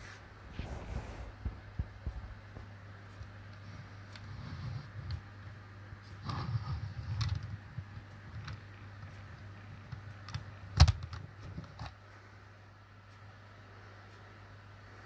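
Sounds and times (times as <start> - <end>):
steady low hum: 0.0 - 15.0
clicks and rubbing of model bus: 6.0 - 8.6.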